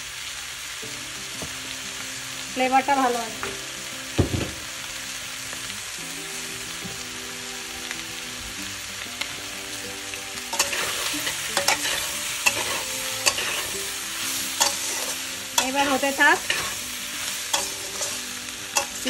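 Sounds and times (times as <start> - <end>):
food sizzling in a pan: 0.0 - 19.0
low thump: 4.2 - 4.6
spatula scraping and knocking pan: 10.5 - 13.8, 14.6 - 16.8.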